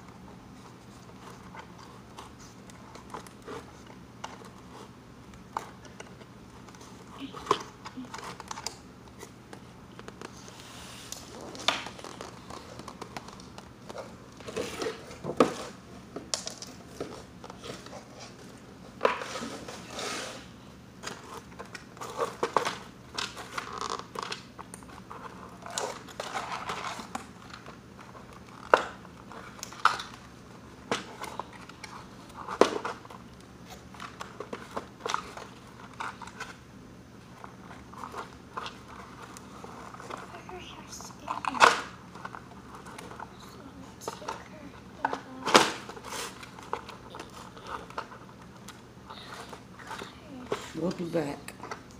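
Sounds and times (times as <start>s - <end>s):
cardboard packaging rustling: 0.5s - 16.2s.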